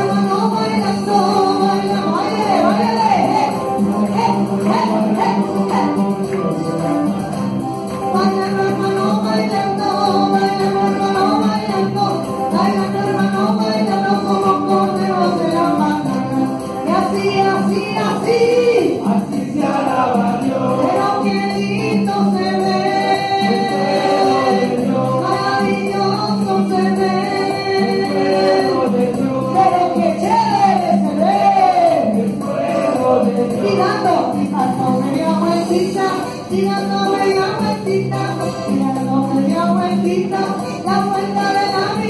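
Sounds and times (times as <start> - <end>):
people singing into microphones: 0.0 - 42.0.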